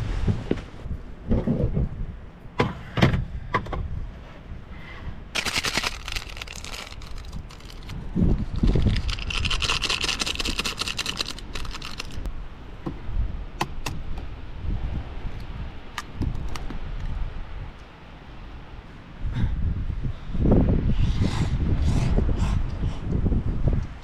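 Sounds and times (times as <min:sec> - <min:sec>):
foil sachet crackling and rustling: 0:05.4 - 0:12.3.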